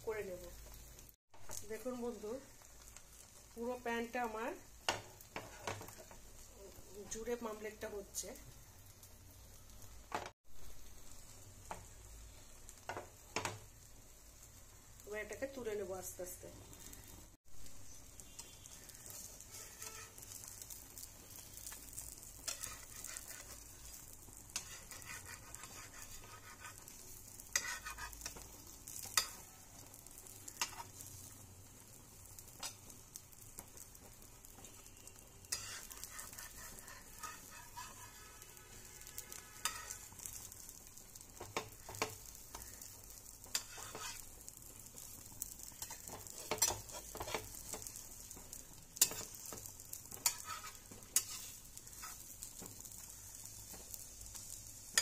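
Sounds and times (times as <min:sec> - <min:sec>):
omelette sizzling in pan: 0:00.0 - 0:55.0
spatula scraping and knocking pan: 0:04.9 - 0:06.2, 0:19.0 - 0:20.7, 0:22.4 - 0:29.4, 0:35.5 - 0:40.4, 0:43.4 - 0:44.2, 0:45.8 - 0:52.9.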